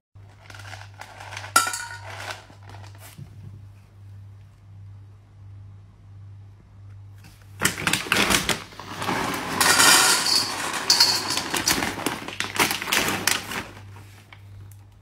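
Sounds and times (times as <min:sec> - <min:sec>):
kibble rattling into metal bowl: 0:00.3 - 0:03.0, 0:07.7 - 0:13.8.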